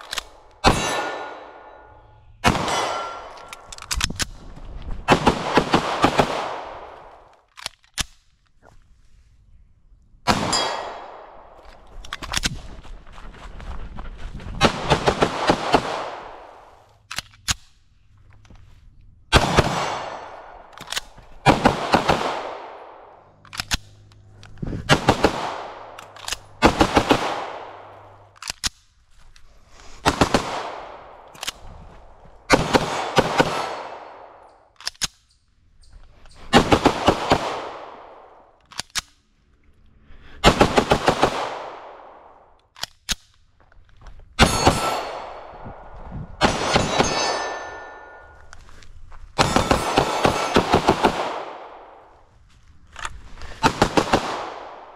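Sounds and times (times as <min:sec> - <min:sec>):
pistol shots echoing: 0:00.2 - 0:03.7, 0:05.1 - 0:07.1, 0:10.3 - 0:11.6, 0:19.3 - 0:24.1, 0:24.9 - 0:28.4, 0:32.5 - 0:34.5, 0:40.4 - 0:42.5, 0:44.4 - 0:48.4, 0:49.4 - 0:52.1, 0:53.6 - 0:54.9.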